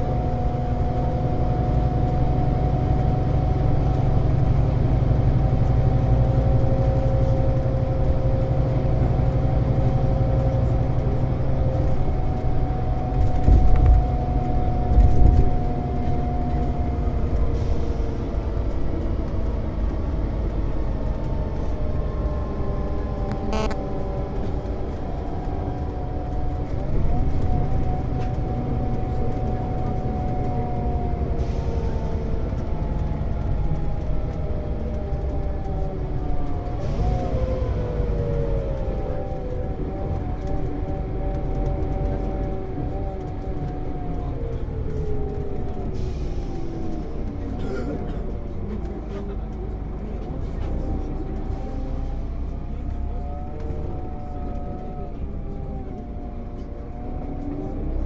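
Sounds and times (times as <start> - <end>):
bus engine rumble: 0.0 - 58.0
drivetrain whine: 0.0 - 58.0.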